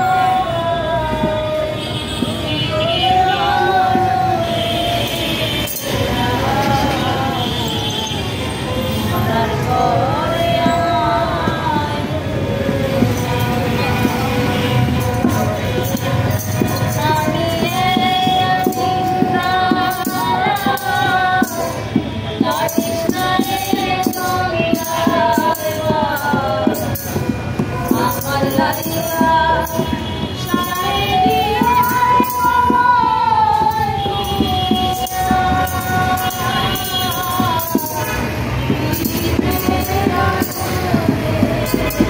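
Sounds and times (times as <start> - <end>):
voices singing: 0.0 - 42.0
hand drum: 10.6 - 42.0.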